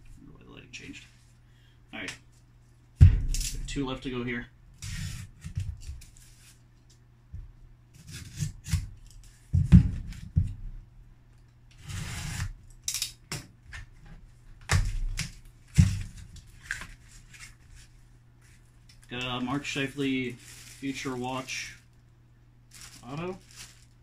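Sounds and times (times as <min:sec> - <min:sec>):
cardboard flaps knocking: 0:09.6 - 0:10.6.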